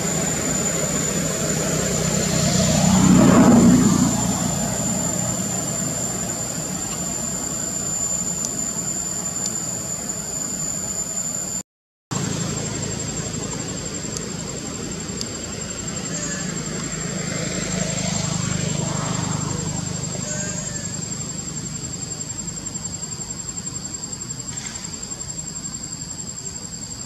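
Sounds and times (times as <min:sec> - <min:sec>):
passing engine: 0:00.0 - 0:10.3, 0:15.5 - 0:21.8
high-pitched whine: 0:00.0 - 0:27.0.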